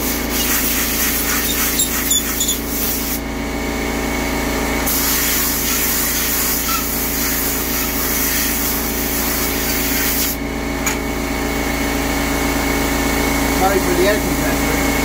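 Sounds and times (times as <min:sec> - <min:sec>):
air compressor humming: 0:00.0 - 0:15.0
compressed air hissing from blow gun: 0:04.9 - 0:10.4.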